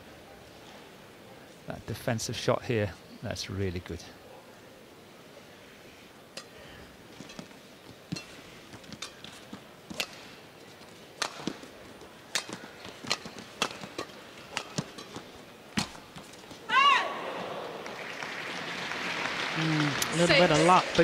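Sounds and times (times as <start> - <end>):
faint arena hum: 0.0 - 21.0
rackets hitting shuttlecock: 7.2 - 10.4, 11.1 - 16.6.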